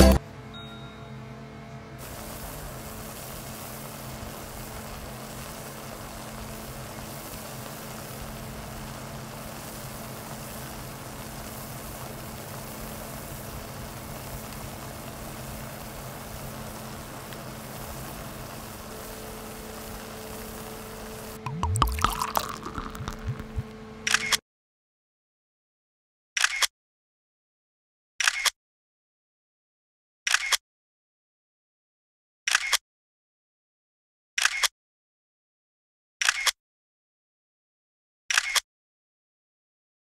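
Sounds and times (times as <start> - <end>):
machine hum with hiss: 0.0 - 21.4
higher steady tone: 21.4 - 23.7.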